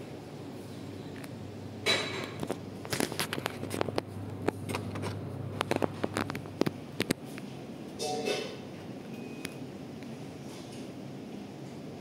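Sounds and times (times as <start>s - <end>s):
air conditioner humming: 0.0s - 12.0s
sharp clicks and crackles: 1.2s - 7.5s.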